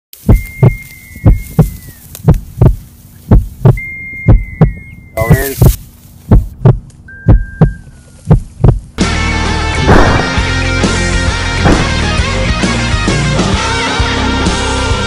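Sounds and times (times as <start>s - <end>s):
high tones dipping in pitch: 0.2s - 2.1s, 3.6s - 5.5s, 7.1s - 8.4s
heartbeat double thump: 0.2s - 9.0s, 9.9s - 10.3s, 11.6s - 12.0s
low hum: 0.2s - 12.9s.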